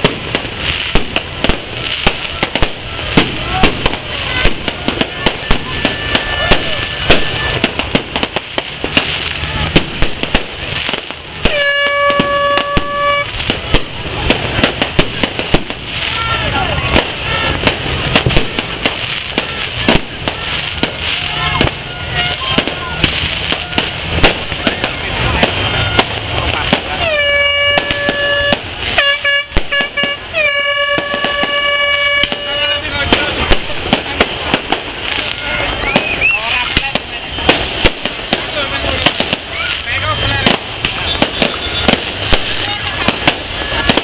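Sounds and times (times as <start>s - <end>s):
fireworks bangs and crackles: 0.0s - 44.0s
horn steady tone: 11.4s - 13.3s, 27.0s - 32.9s.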